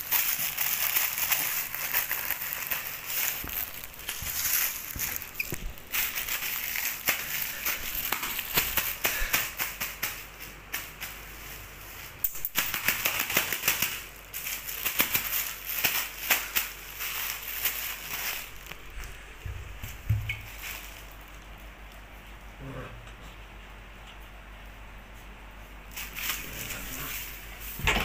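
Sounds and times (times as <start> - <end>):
puppy claws clicking on tile floor: 0.0 - 11.2, 12.2 - 19.0.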